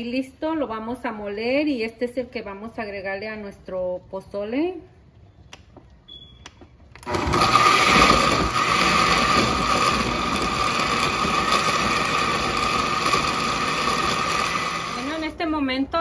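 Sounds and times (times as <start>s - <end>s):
blender running: 7.0s - 15.4s.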